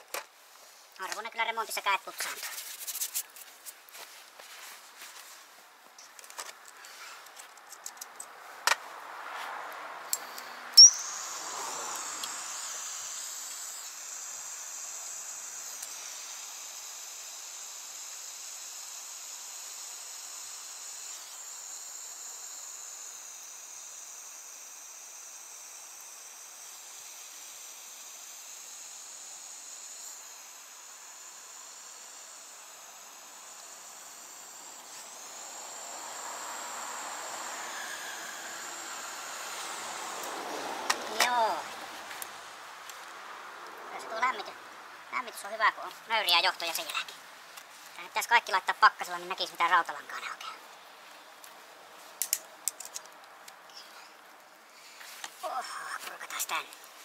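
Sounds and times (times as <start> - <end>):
butane torch hissing: 10.1 - 17.0, 25.1 - 43.2.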